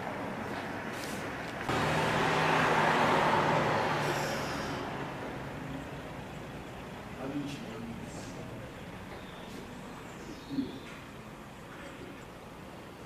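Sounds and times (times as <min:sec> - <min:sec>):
vehicle passing on road: 0:00.0 - 0:09.2.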